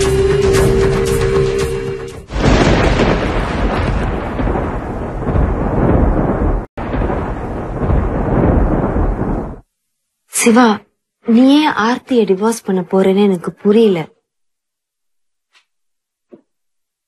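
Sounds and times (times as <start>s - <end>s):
dramatic music: 0.0s - 3.2s
thunder-like rumbling: 2.3s - 9.7s.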